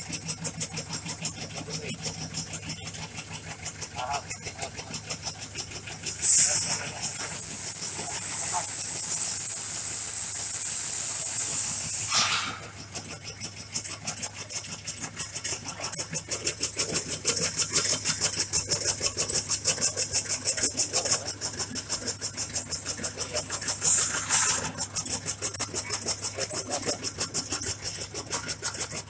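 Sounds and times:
shredding machine running: 0.0 - 29.0.

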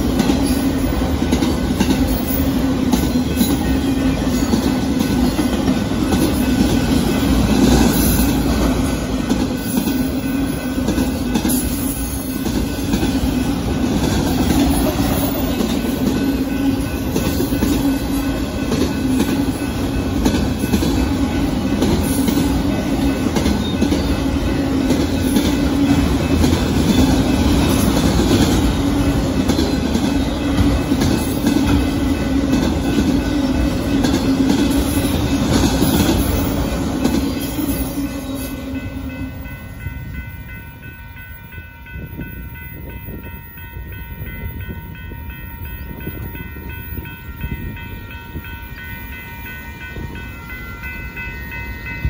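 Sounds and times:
freight cars rolling on rails: 0.0 - 52.0.

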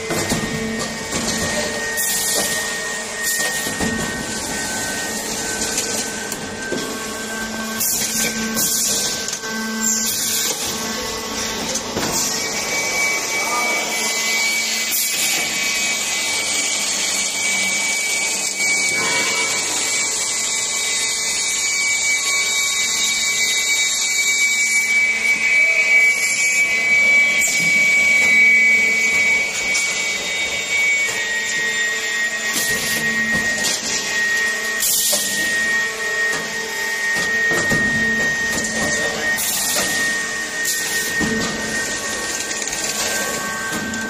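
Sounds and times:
machine high whine: 0.0 - 44.0.

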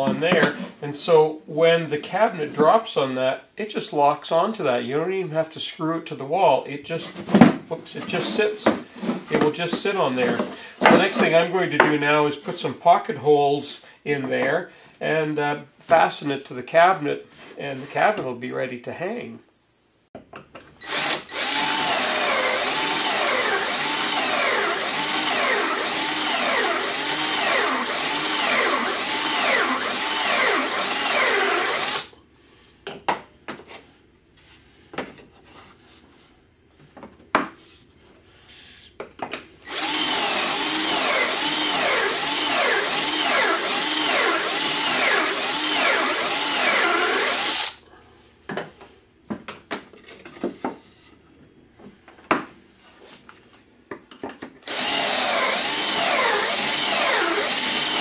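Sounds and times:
cordless drill drilling: 20.8 - 32.1, 39.7 - 47.8, 54.6 - 58.0.

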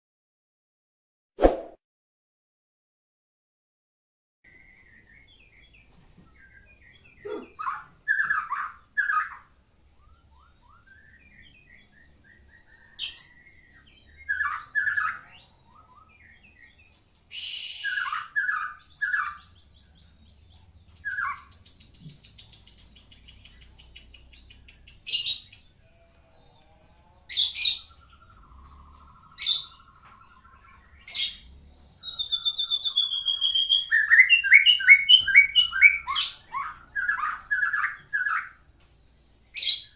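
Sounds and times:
bird singing loud phrases and trills: 4.5 - 39.9.

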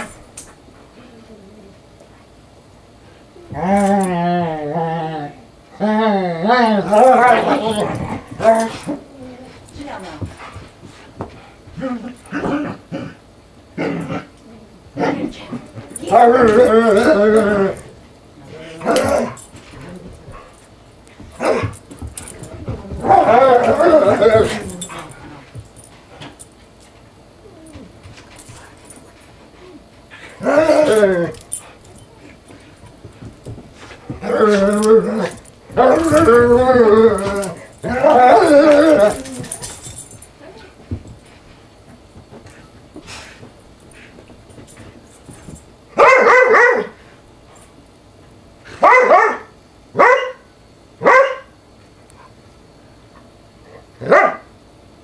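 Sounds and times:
dog play-barking: 15.0 - 17.9, 18.6 - 20.5, 21.4 - 25.6, 46.0 - 47.0, 48.7 - 50.4, 51.0 - 51.5, 54.0 - 54.5
dog whining: 22.8 - 25.4, 34.2 - 40.6.

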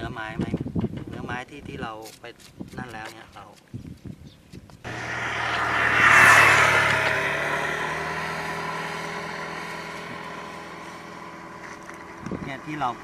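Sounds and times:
motor engine passing by: 4.8 - 13.0.

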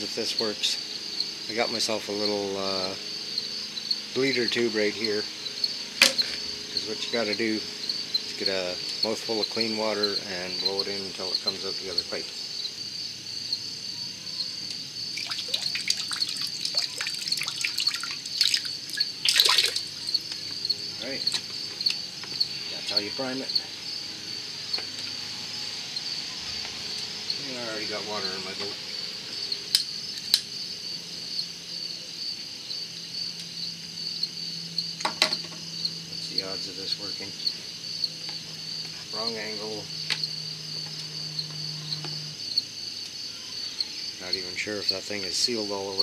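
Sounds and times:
crickets chirping: 0.0 - 46.0
water dripping into bucket: 15.1 - 20.5.

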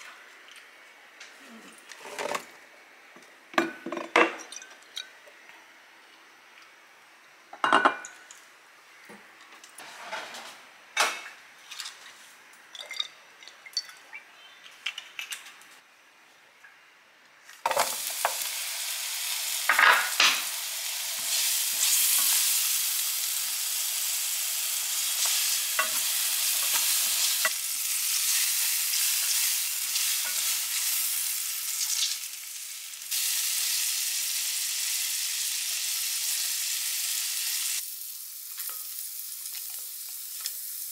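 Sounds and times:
bottles clinking on countertop: 12.7 - 14.0
sausage frying in oil: 17.6 - 40.9.

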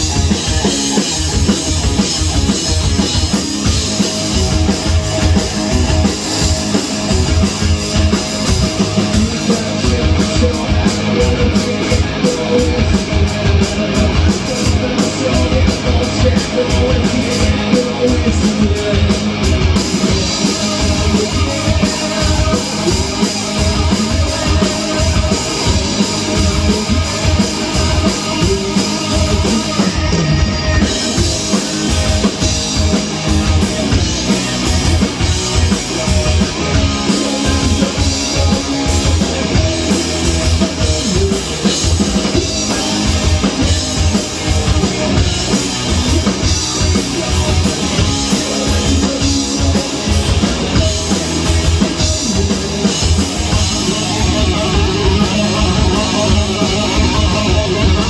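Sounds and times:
drum and cymbal hits: 0.0 - 58.0
electric guitar: 0.0 - 58.0.

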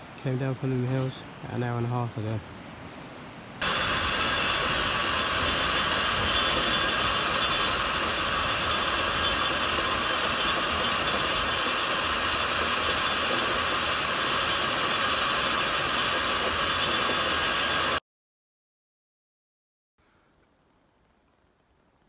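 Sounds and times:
funicular car running on rails: 3.6 - 18.0.

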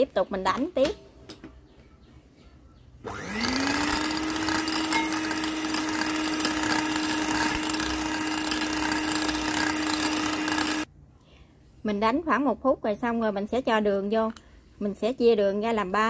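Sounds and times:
beaters whipping egg whites: 3.1 - 10.9
electric mixer motor running: 3.1 - 10.9.

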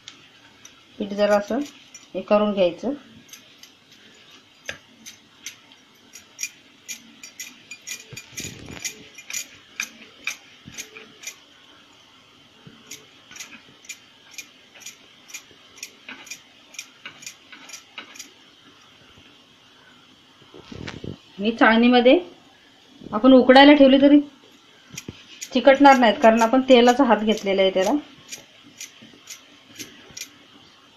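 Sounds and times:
glass bangles clinking: 6.2 - 10.0.

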